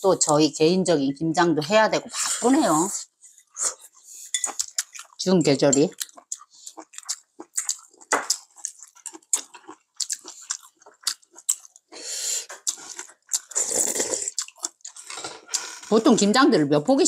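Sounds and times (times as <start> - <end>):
chewing and mouth sounds: 3.6 - 15.9
chopsticks and spoons clicking bowls: 4.3 - 4.8.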